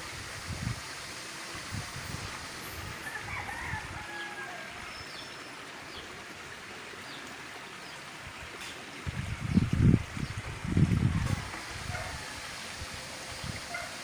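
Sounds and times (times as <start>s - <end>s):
steady outdoor hiss: 0.0s - 14.0s
rooster crowing: 3.0s - 4.9s.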